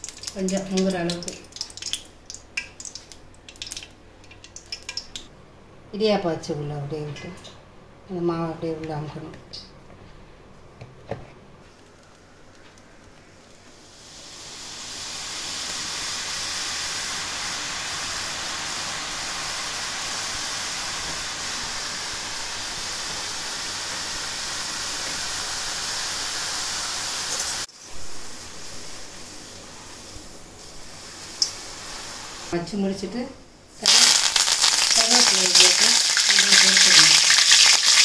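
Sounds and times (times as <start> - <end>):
dough sizzling in hot oil: 0.0 - 5.3, 13.3 - 32.6, 33.8 - 38.0.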